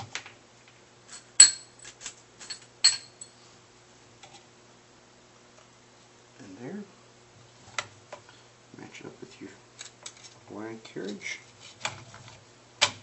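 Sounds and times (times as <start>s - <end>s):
metal washers and bolts clinking: 1.1s - 3.3s.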